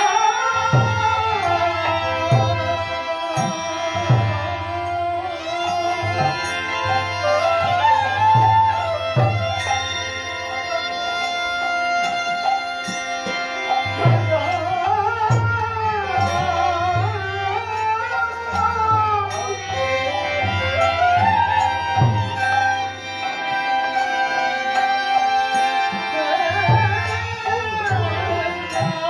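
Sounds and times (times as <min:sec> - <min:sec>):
held drone: 0:00.0 - 0:29.0
hand drum: 0:02.2 - 0:09.9, 0:11.9 - 0:22.7.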